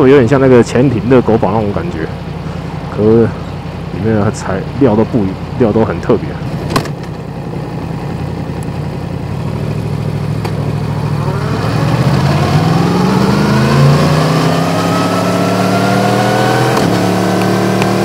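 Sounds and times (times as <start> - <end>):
motorcycle engine accelerating: 6.4 - 18.0.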